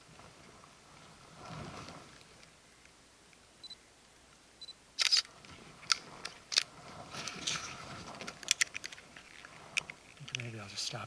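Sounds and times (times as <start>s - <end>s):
hiking poles clicking and knocking: 5.8s - 10.5s
hands handling camera: 5.9s - 10.4s.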